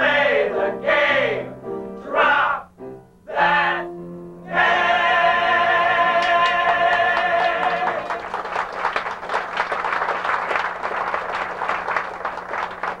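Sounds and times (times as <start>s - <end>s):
audience applause: 6.2s - 13.0s.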